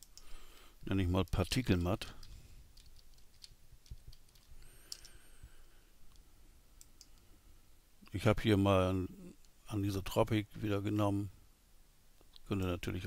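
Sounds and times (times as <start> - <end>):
keyboard and mouse clicks: 0.0 - 0.3, 1.2 - 5.2.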